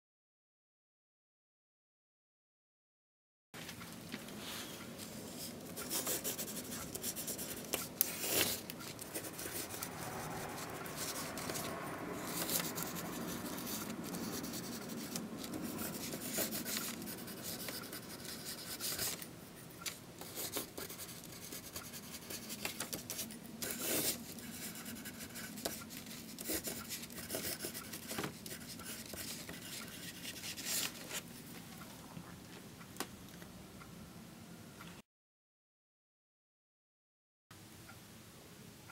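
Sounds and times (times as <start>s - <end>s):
pen scratching on paper: 5.4s - 19.3s, 19.9s - 31.3s.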